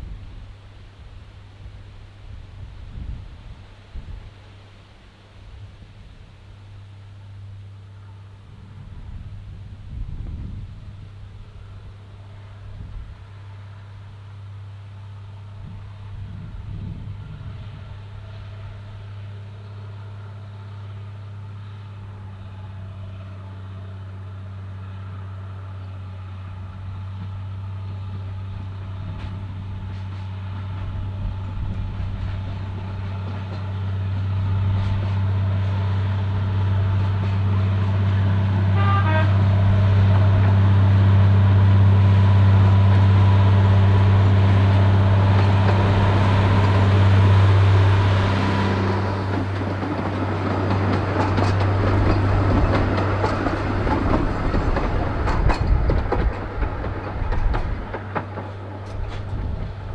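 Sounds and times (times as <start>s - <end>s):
diesel locomotive engine humming: 0.0s - 59.9s
locomotive horn toot: 38.1s - 48.9s.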